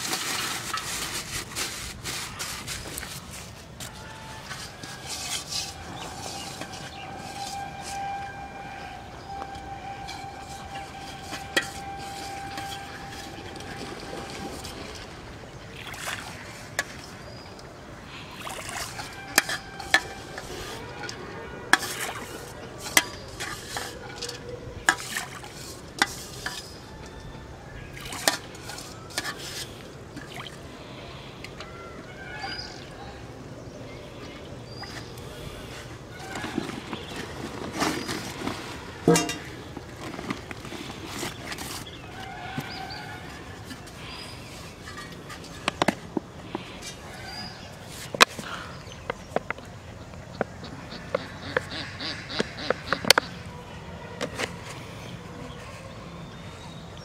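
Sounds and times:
water sloshing in a metal pot: 0:04.0 - 0:17.7, 0:18.3 - 0:27.0, 0:27.9 - 0:30.7, 0:34.8 - 0:48.2
steady high tone: 0:05.8 - 0:15.2
sharp knocks and splashes: 0:11.6 - 0:17.4, 0:18.4 - 0:20.3.

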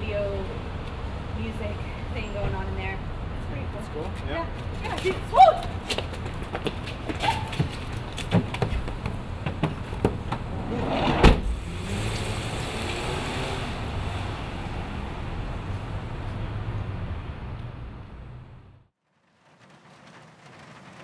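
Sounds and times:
van engine and tyre noise: 0:00.0 - 0:21.0
knocks and scuffles: 0:05.8 - 0:10.5
sliding door slamming shut: 0:10.4 - 0:11.6.

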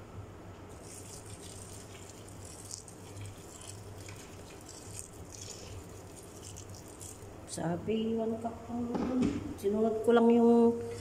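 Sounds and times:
water pouring into a pot: 0:00.7 - 0:07.4.

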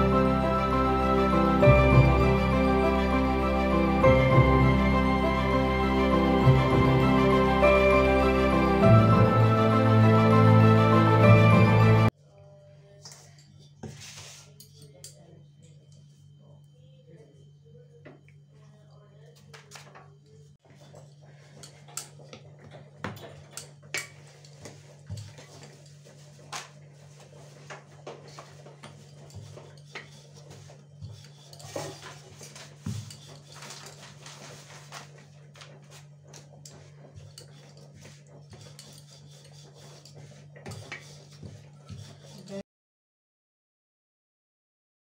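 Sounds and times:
rolling pin on dough: 0:20.6 - 0:42.6.

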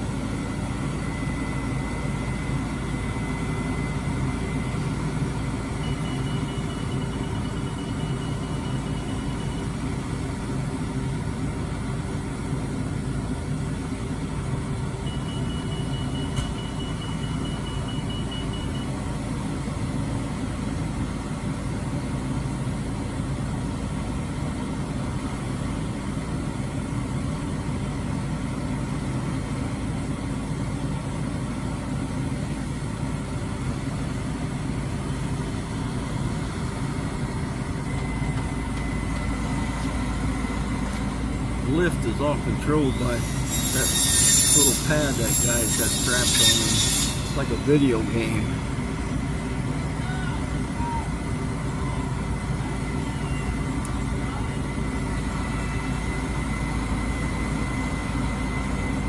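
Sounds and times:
diesel engine running: 0:00.0 - 0:59.0
faint high rapid beeping: 0:05.8 - 0:09.8.

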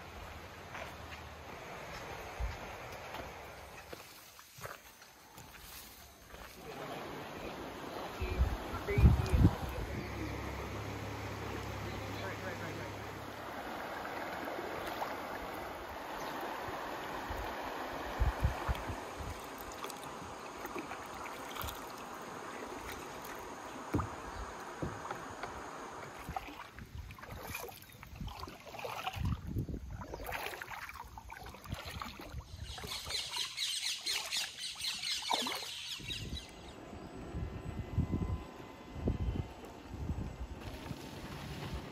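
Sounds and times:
river water rippling: 0:00.0 - 0:41.9
wind buffeting microphone: 0:07.3 - 0:12.1, 0:13.2 - 0:20.5, 0:26.1 - 0:30.4, 0:35.9 - 0:41.9.

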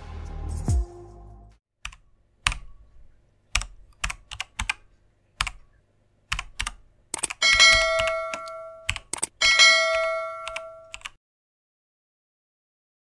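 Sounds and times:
keyboard key clicks: 0:01.8 - 0:02.8, 0:03.5 - 0:05.7, 0:06.3 - 0:09.4, 0:10.4 - 0:11.2
bell-like ding: 0:07.4 - 0:11.0.

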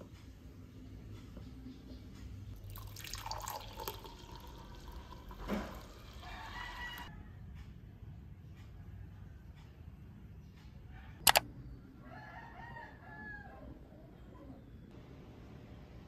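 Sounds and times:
coffee pouring into mug: 0:02.6 - 0:07.1.

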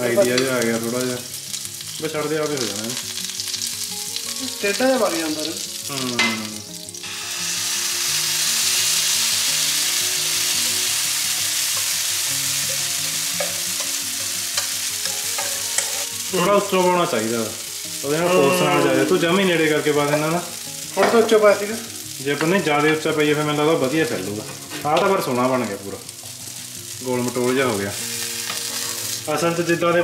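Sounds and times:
batter sizzling in a pan: 0:00.0 - 0:30.0
person speaking: 0:18.1 - 0:19.8.

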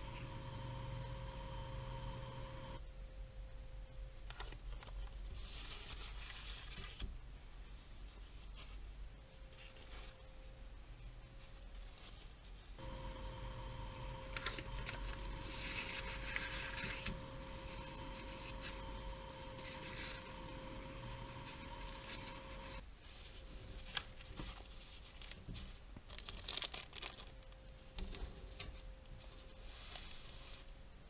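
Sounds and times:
paper and plastic wrappers rustling: 0:12.8 - 0:22.8, 0:23.7 - 0:27.5.

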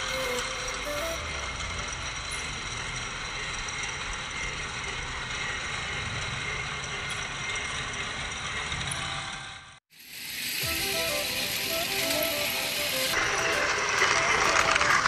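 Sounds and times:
toy train motor whirring: 0:00.0 - 0:15.0
toy train wheels rattling: 0:00.0 - 0:15.0.

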